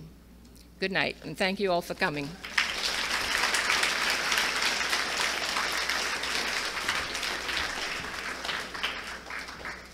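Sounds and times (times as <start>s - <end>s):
audience applauding: 2.4s - 9.9s.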